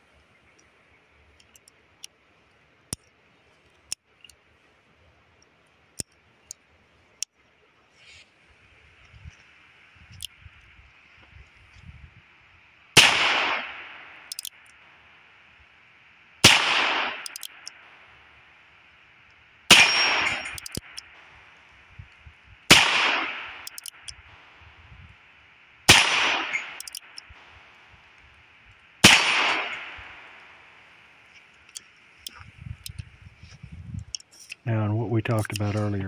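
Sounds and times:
revolver hammer clicks: 14.3s - 14.8s, 17.0s - 17.8s, 19.7s - 21.1s, 23.6s - 24.2s, 26.3s - 27.4s.

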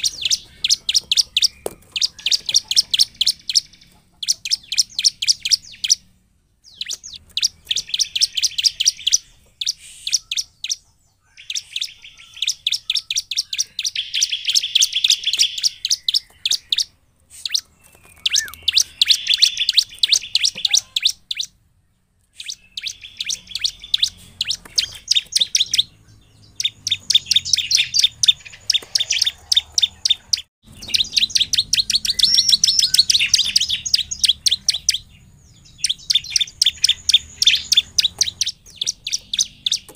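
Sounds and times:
bird singing high chirps: 0.0s - 39.9s.

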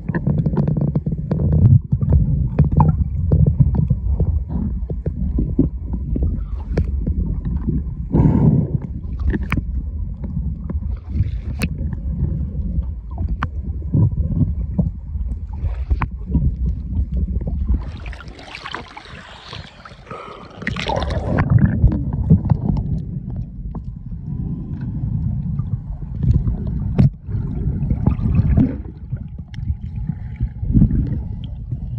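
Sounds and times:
water sloshing against camera: 0.0s - 31.9s
hissing rush of water: 17.9s - 21.4s.

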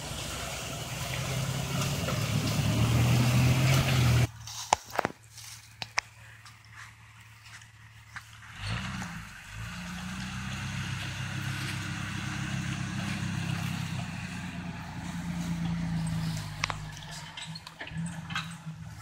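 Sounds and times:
off-road vehicle engine revving: 0.0s - 4.3s, 8.1s - 19.0s.

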